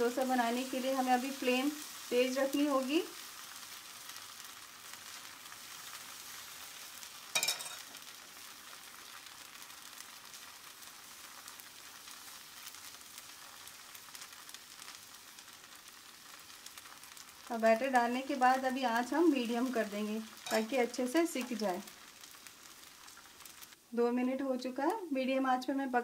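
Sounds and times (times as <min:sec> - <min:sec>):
batter sizzling on hot griddle: 0:00.0 - 0:26.0
sharp metal clink: 0:07.4 - 0:07.8, 0:20.4 - 0:20.6.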